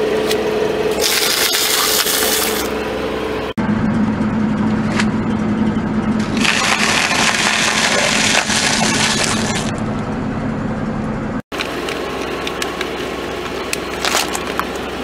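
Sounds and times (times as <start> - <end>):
steady low hum: 0.0 - 15.0
car tyre crushing ice cream cones: 13.7 - 14.9.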